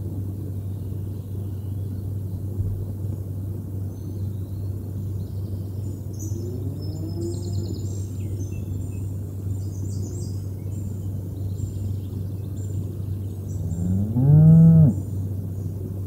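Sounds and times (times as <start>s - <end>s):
cow mooing: 13.6s - 15.0s.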